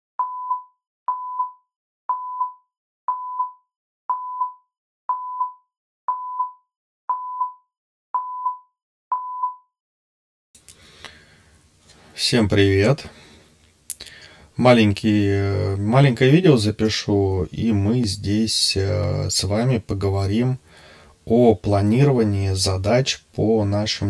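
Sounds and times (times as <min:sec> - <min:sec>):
short beep with click: 0:00.2 - 0:09.7.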